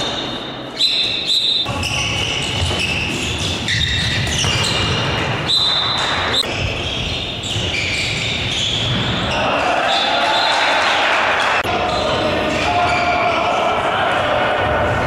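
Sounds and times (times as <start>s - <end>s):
shoes squeaking: 0.0s - 10.1s.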